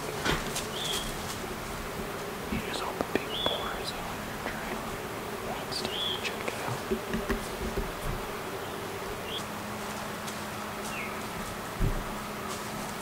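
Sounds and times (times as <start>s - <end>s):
flying insects buzzing: 0.0s - 13.0s
high bird chirps: 3.2s - 3.9s, 5.8s - 6.4s.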